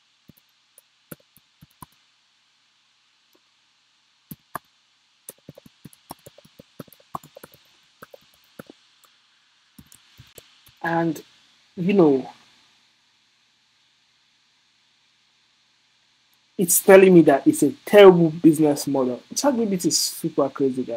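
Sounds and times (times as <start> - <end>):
computer keyboard typing: 1.1 - 2.0, 4.3 - 4.6, 5.3 - 8.7.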